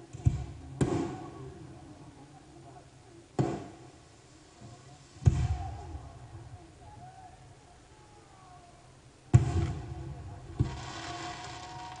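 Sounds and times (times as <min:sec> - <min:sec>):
fireworks bangs: 0:09.3 - 0:12.0.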